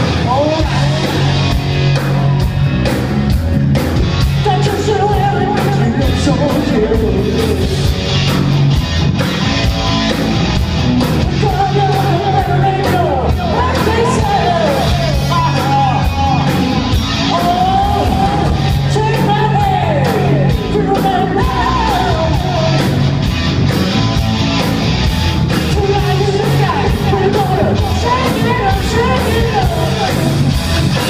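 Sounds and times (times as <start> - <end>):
male lead vocals: 0.0 - 1.7, 4.3 - 8.0, 11.1 - 23.3, 25.5 - 31.0
hard rock band playing: 0.0 - 31.0.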